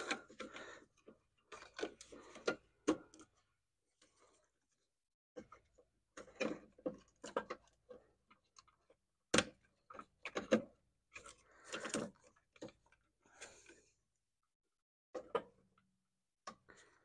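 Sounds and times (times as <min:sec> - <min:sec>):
plastic parts clicking and knocking: 0:00.0 - 0:03.5, 0:05.4 - 0:13.1, 0:15.2 - 0:17.0.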